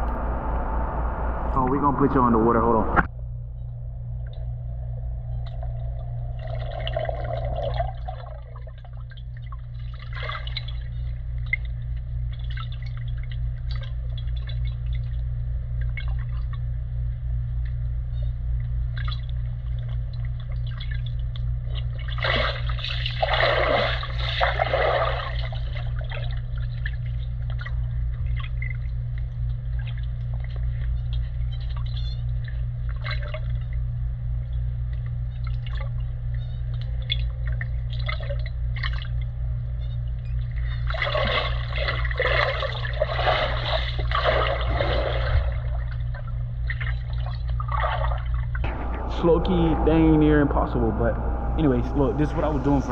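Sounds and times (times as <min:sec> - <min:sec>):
steady low hum: 0:00.0 - 0:52.9
water drips: 0:04.2 - 0:16.7, 0:18.6 - 0:24.4
pool water splashing: 0:21.9 - 0:27.1, 0:40.8 - 0:48.5.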